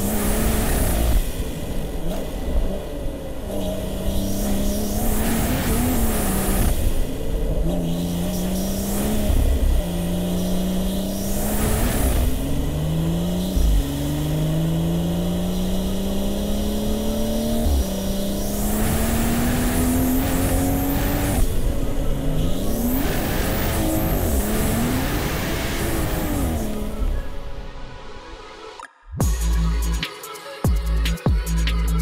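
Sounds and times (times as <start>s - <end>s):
car engine accelerating hard: 0.0s - 28.2s.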